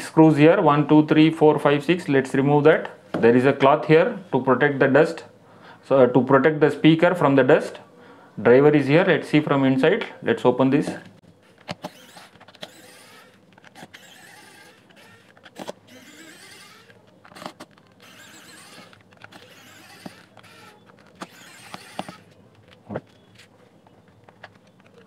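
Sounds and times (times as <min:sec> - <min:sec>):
electric screwdriver whining: 0:11.6 - 0:23.5
clicks of screws and plastic: 0:14.9 - 0:23.2, 0:24.0 - 0:25.0.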